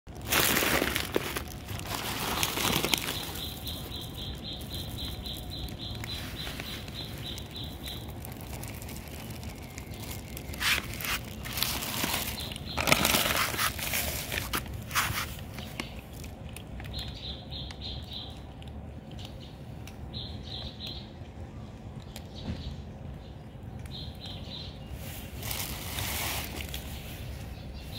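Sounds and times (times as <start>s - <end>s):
cats eating dry kibble: 0.1s - 27.9s.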